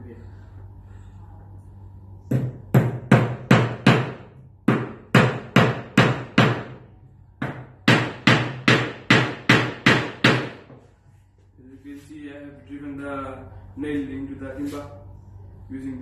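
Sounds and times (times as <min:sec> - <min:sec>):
hammer hitting nail into wood: 0:02.3 - 0:06.8, 0:07.4 - 0:10.7.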